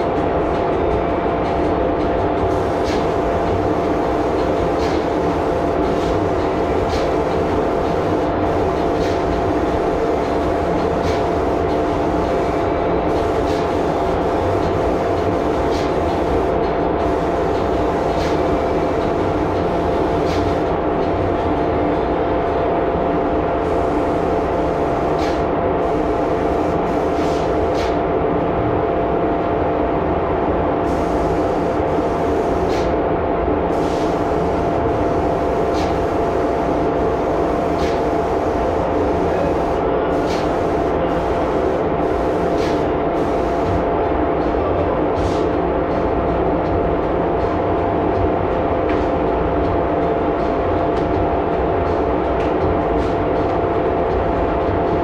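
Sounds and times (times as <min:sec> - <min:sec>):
exhaust fan drone: 0:00.0 - 0:55.0
air pump hum: 0:02.4 - 0:21.3, 0:23.6 - 0:28.0, 0:30.8 - 0:33.0, 0:33.7 - 0:43.9.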